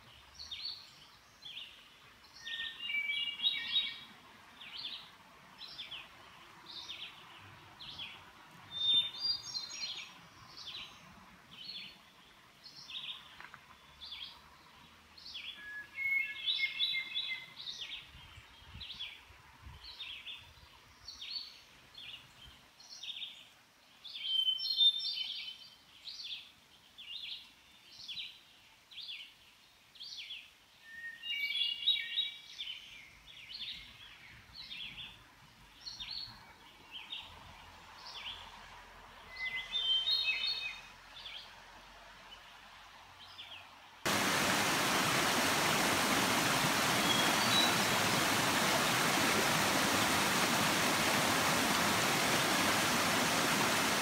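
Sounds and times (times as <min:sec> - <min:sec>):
songbird song phrases: 0:00.0 - 0:54.0
songbird short call: 0:44.1 - 0:52.6
stream rushing over rocks: 0:44.1 - 0:54.0.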